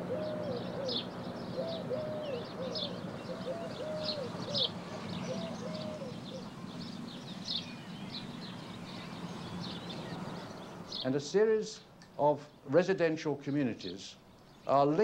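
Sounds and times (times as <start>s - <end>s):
pigeon cooing: 0.0s - 6.6s
small birds chirping: 0.0s - 15.0s.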